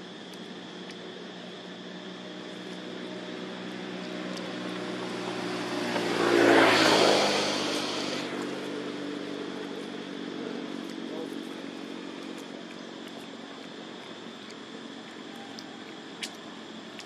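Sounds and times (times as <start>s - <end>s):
steady low hum: 0.0s - 17.0s
motor vehicle passing by: 2.5s - 12.4s.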